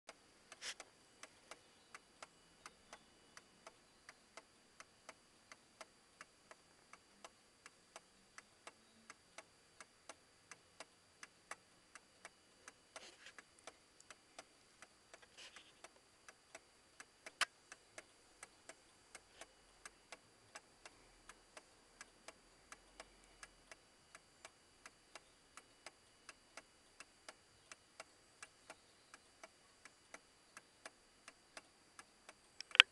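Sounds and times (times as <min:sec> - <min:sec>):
pendulum clock ticking: 0:00.1 - 0:32.9
sharp click: 0:32.6 - 0:32.9.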